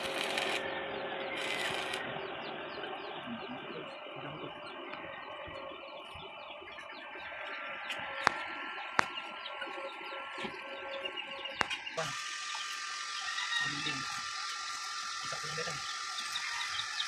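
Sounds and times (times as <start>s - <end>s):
welding arc crackling hiss: 0.0s - 0.6s, 1.4s - 2.0s, 12.0s - 17.0s
welding electrode snaps: 0.0s - 0.6s.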